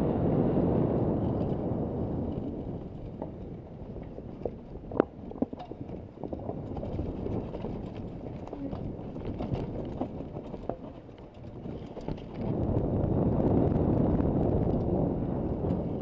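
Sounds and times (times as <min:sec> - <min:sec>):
bike tyres over dirt and roots: 0:00.0 - 0:16.0
wind on microphone: 0:00.0 - 0:16.0
bike rattling and knocking: 0:01.0 - 0:16.0.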